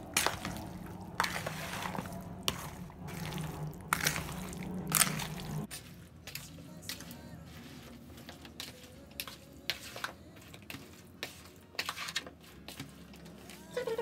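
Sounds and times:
ladle scraping plastic bowl: 0:00.0 - 0:06.4, 0:07.5 - 0:14.0.

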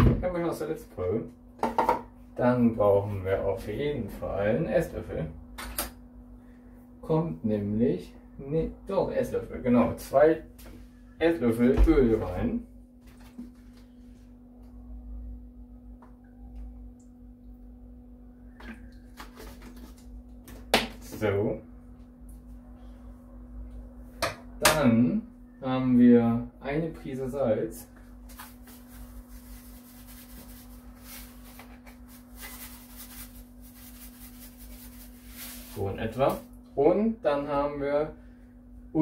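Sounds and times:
steady low hum: 0:00.0 - 0:39.0
low hum: 0:05.0 - 0:20.4
fingers rubbing and rustling: 0:28.3 - 0:36.5.

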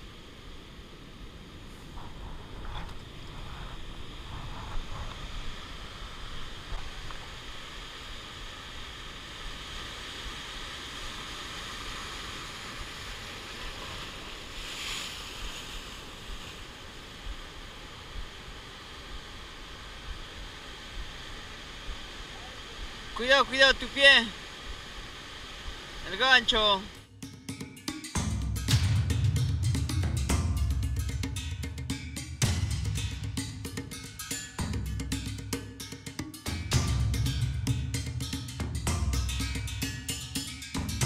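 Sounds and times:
surf washing over rocks: 0:00.0 - 0:27.1
wind on microphone: 0:00.8 - 0:23.2.

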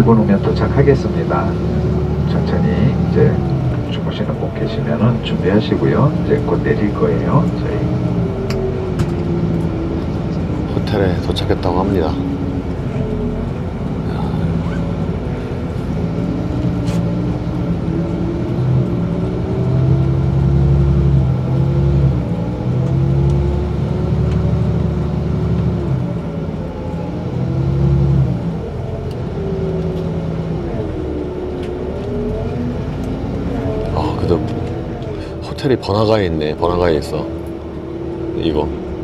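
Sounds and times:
bus engine running: 0:00.0 - 0:39.0.

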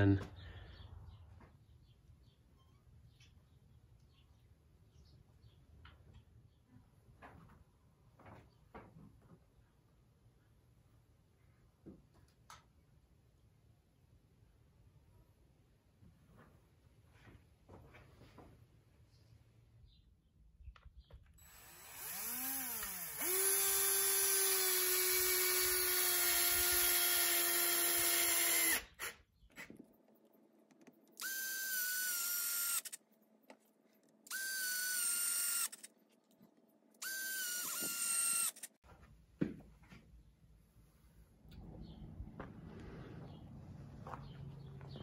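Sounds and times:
cordless drill driving screws: 0:21.4 - 0:29.2, 0:31.1 - 0:33.0, 0:34.3 - 0:35.9, 0:37.0 - 0:38.8.

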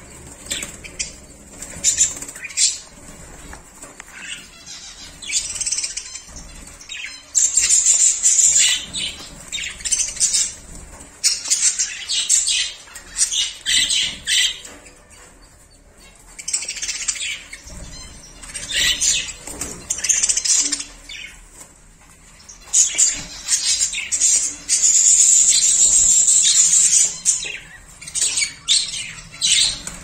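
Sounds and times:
budgerigars chattering and chirping: 0:00.0 - 0:21.5, 0:22.3 - 0:30.0.

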